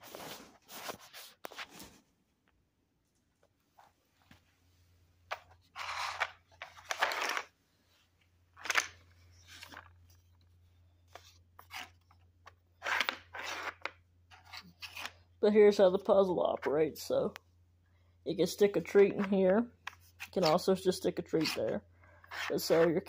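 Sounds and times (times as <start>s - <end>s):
plastic pieces scraping and rattling: 5.3s - 7.5s, 8.6s - 10.2s.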